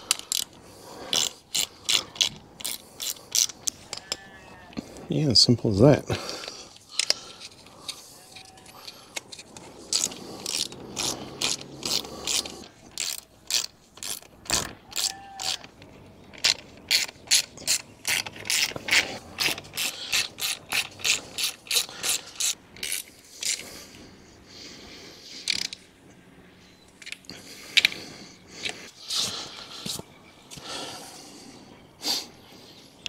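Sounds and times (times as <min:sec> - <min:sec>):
hand ratchet clicking: 0:00.0 - 0:04.2, 0:09.2 - 0:15.7, 0:16.3 - 0:23.6.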